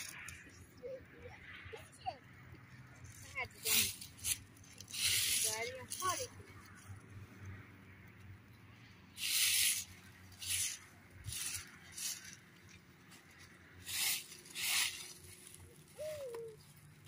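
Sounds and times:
short hissing bursts: 0:03.7 - 0:05.6, 0:09.2 - 0:12.4, 0:13.8 - 0:15.6.

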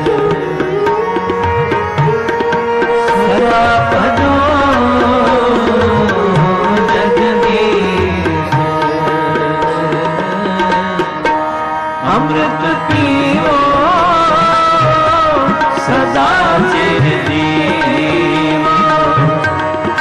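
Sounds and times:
devotional music melody: 0:00.0 - 0:20.0
tabla drumming: 0:00.0 - 0:20.0.

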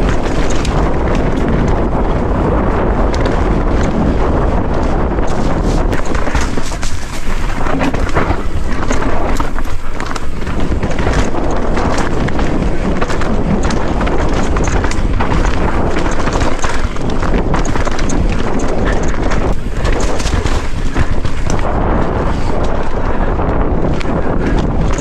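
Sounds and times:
tyres crunching over stones: 0:00.0 - 0:01.9, 0:05.3 - 0:23.0, 0:23.9 - 0:25.0
bike rattling and knocking: 0:00.0 - 0:25.0
wind buffeting microphone: 0:00.0 - 0:25.0.

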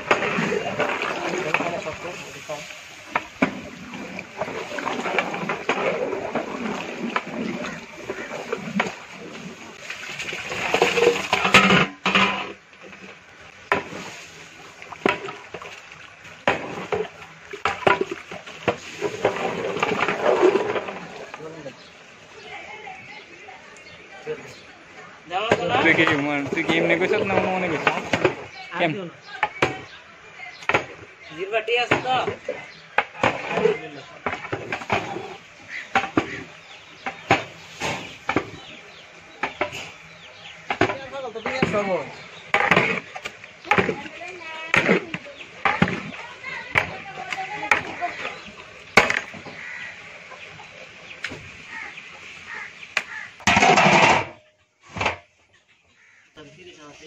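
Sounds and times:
ladle scraping metal pot: 0:00.0 - 0:15.8, 0:16.4 - 0:22.0, 0:32.3 - 0:38.8, 0:39.4 - 0:50.2, 0:51.4 - 0:55.2
liquid sloshing: 0:00.0 - 0:29.9, 0:30.6 - 0:55.3.

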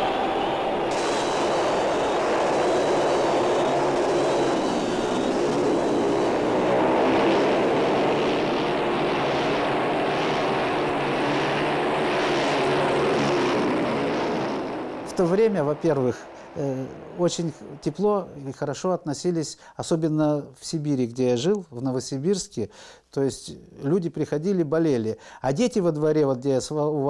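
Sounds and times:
racing motorcycle engines droning: 0:00.0 - 0:18.4.

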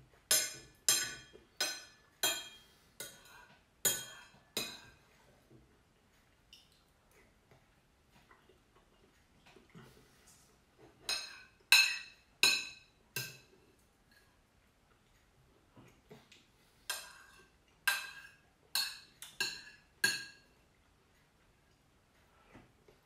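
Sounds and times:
spoon clinking ceramic bowl: 0:11.1 - 0:13.5.

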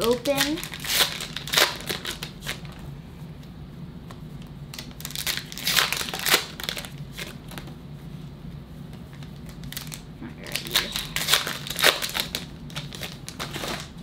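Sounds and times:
foil wrappers crinkling: 0:00.0 - 0:02.8, 0:04.7 - 0:07.7, 0:09.1 - 0:14.0.

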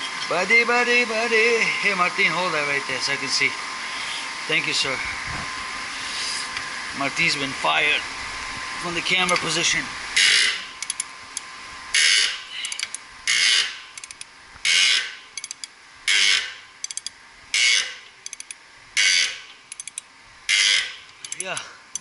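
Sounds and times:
ratchet wrench ratcheting: 0:10.2 - 0:11.1, 0:12.0 - 0:22.0.

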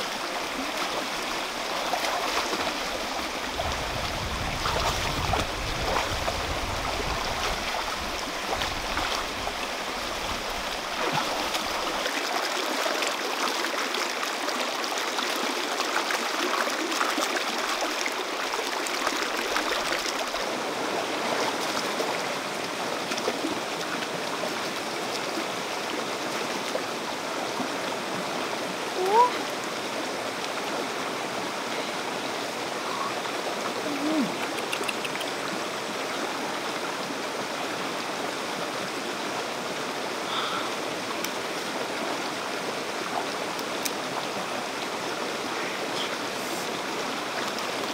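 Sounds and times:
stream rushing over stones: 0:00.0 - 0:47.9.

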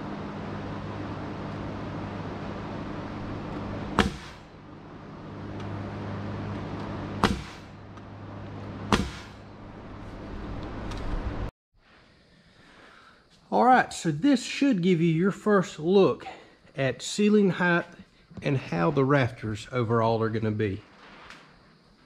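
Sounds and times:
low machine hum: 0:00.0 - 0:11.5
pneumatic nailer bangs: 0:03.9 - 0:04.5, 0:07.2 - 0:07.8, 0:08.9 - 0:09.4.

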